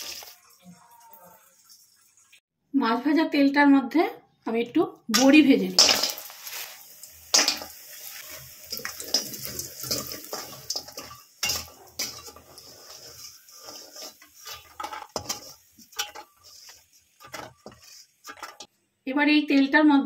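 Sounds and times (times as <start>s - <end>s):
metal spatula scraping a steel pan: 5.8s - 18.7s.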